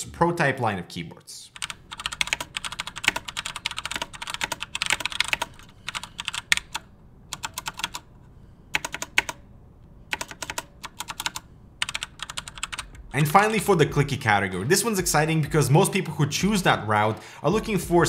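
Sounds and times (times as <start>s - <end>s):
keyboard typing: 1.6s - 9.4s, 10.1s - 13.6s.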